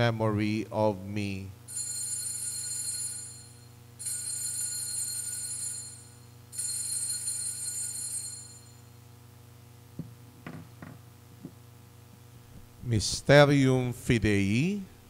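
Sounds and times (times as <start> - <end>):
altar bells ringing: 1.7 - 8.8.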